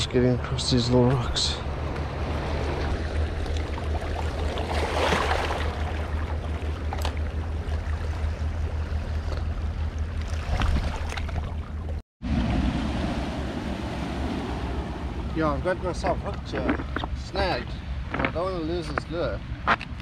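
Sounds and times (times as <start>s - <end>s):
sea water washing over rocks: 2.4s - 7.0s.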